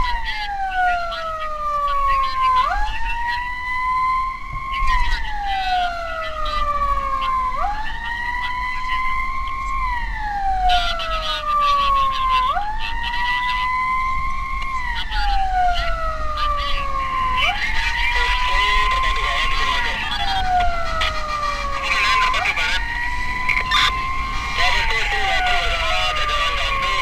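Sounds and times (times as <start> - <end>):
emergency siren wailing: 0.0 - 27.0.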